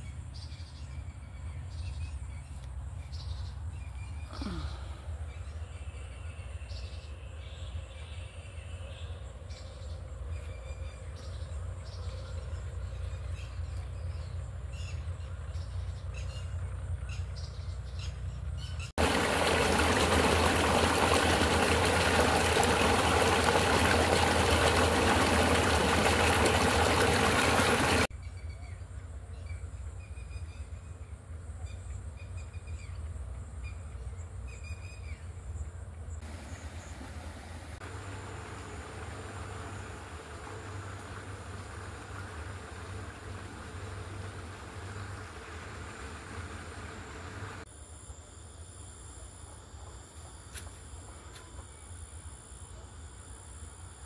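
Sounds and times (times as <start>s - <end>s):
birds chirping: 10.8s - 28.1s
water pouring into a concrete tank: 19.0s - 28.1s, 36.2s - 47.6s.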